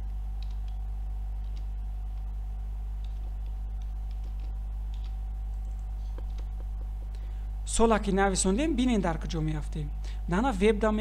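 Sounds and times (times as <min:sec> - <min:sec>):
keyboard typing clicks: 0:00.0 - 0:00.8, 0:01.4 - 0:02.3, 0:03.0 - 0:07.2
low electrical hum: 0:00.0 - 0:11.0.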